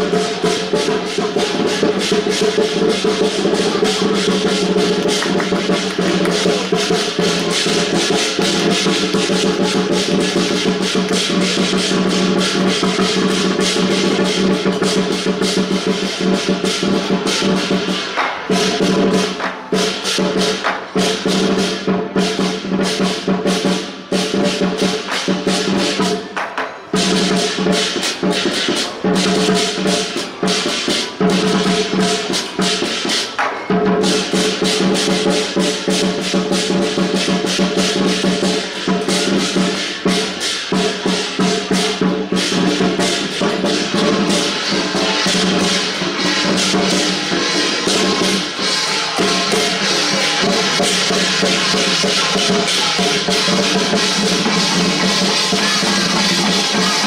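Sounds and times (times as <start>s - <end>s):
cymbals crashing: 0.0s - 57.0s
drum beating fast rhythm: 0.0s - 57.0s.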